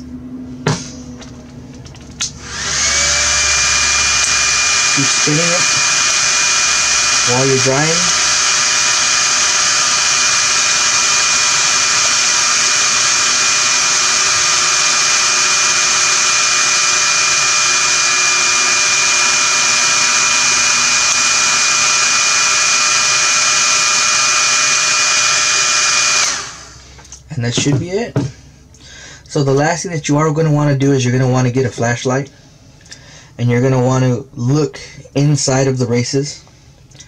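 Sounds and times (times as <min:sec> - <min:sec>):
hair dryer running: 0:00.7 - 0:27.1.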